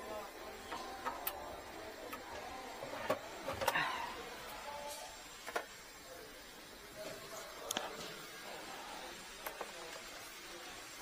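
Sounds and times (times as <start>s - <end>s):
cables and plastic clicking: 0.7s - 3.8s, 7.6s - 8.0s, 9.4s - 10.1s.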